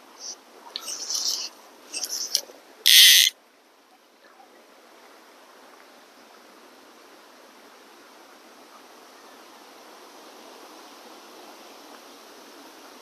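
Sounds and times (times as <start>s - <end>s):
fly reel click drag buzzing: 2.9s - 3.3s.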